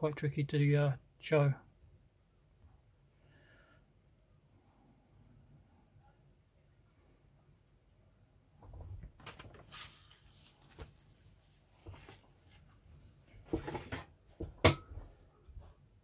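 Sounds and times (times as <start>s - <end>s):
plastic and cardboard rustling: 8.6s - 14.2s.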